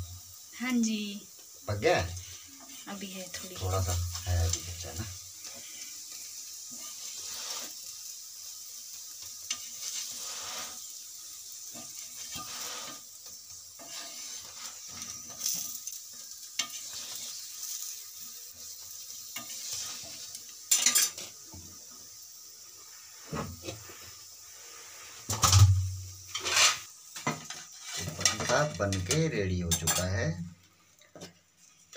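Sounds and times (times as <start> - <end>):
flatbread sizzling in oil: 0.0 - 31.9
metal spatula scraping pan: 11.7 - 13.0, 13.8 - 15.8, 16.6 - 17.8, 19.4 - 21.3, 25.3 - 29.1, 29.7 - 30.1
metal knock on pan: 25.3 - 26.0.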